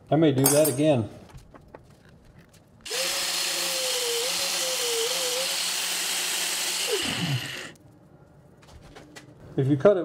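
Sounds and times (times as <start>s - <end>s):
angle grinder whining: 2.9s - 7.8s.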